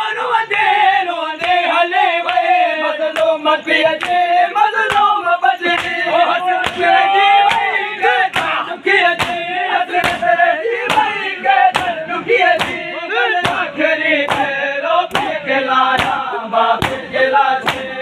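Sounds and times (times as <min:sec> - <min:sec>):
men chanting loudly: 0:00.0 - 0:18.0
hands slapping bare chests: 0:04.0 - 0:05.1, 0:05.7 - 0:08.6, 0:09.2 - 0:10.3, 0:10.9 - 0:12.0, 0:12.6 - 0:15.4, 0:16.0 - 0:18.0.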